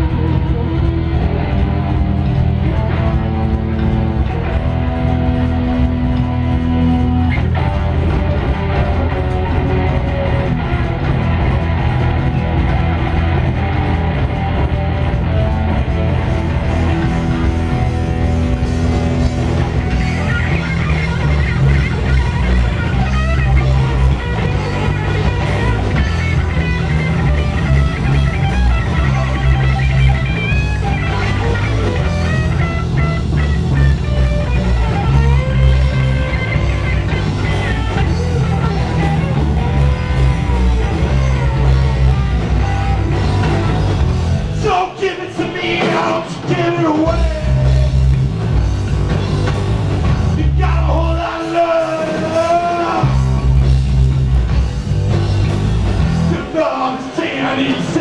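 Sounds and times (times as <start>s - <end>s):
heavy metal band playing live: 0.0s - 58.0s
person singing: 44.6s - 48.1s, 50.4s - 53.3s.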